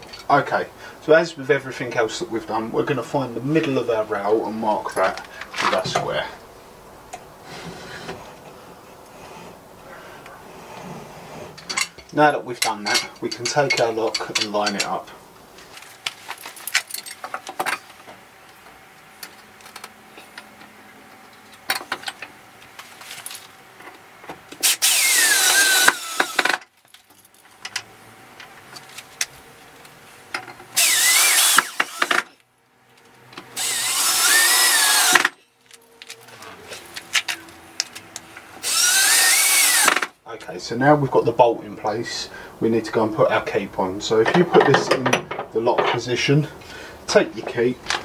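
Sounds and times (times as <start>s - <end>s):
cordless drill driving screws: 24.6s - 26.6s, 30.8s - 32.4s, 33.6s - 35.4s, 38.6s - 40.1s.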